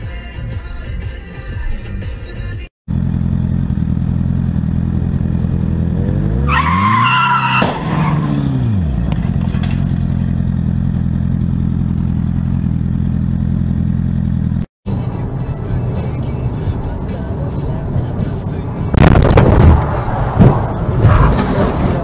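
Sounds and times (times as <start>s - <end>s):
engine revving: 2.9s - 22.0s
tyres squealing: 6.5s - 8.3s
sharp crack: 18.9s - 22.0s.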